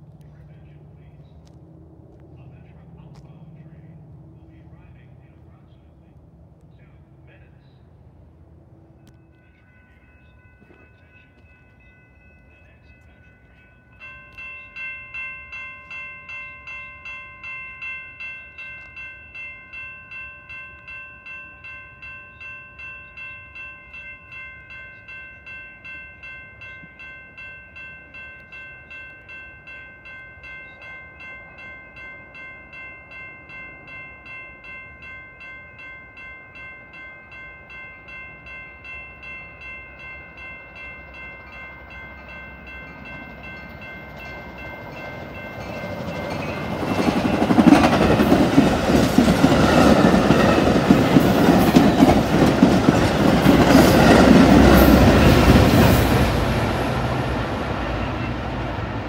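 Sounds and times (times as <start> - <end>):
train passing at speed: 0.0 - 59.0
crossing warning bell dinging: 8.8 - 59.0
wheels clickety-clack on rails: 22.4 - 59.0.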